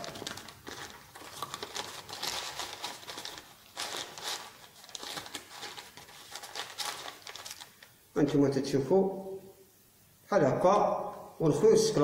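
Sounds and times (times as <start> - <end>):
paper crinkling and rustling: 0.0 - 7.9.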